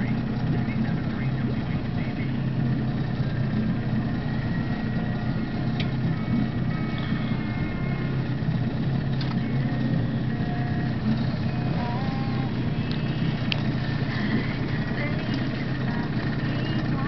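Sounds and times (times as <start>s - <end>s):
boat motor humming: 0.0s - 17.0s.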